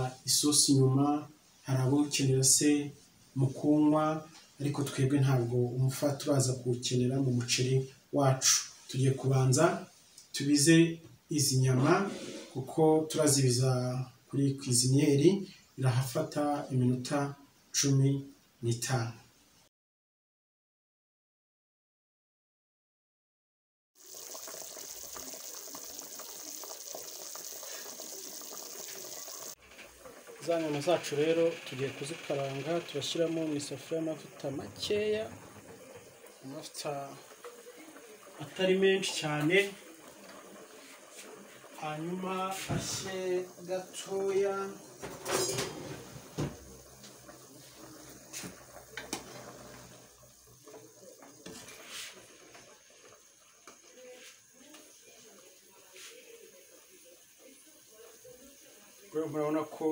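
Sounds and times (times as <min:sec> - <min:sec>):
water boiling with pops: 0:24.0 - 0:59.9
kitchenware scraping and knocking: 0:45.0 - 0:46.7.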